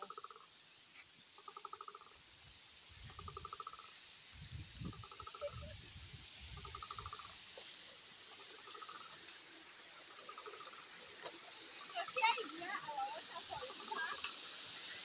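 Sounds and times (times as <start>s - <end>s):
river flowing: 6.3s - 15.0s.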